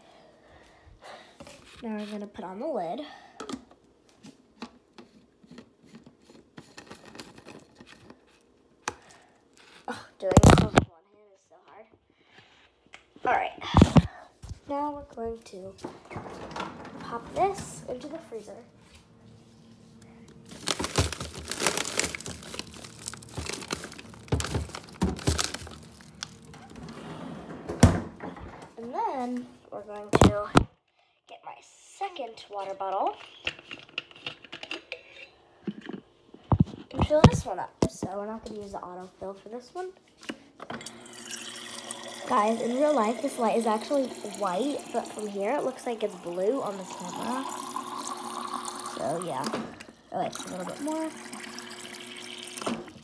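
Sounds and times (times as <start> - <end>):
low steady hum: 0.0 - 33.9
plastic bags crinkling: 20.3 - 26.8.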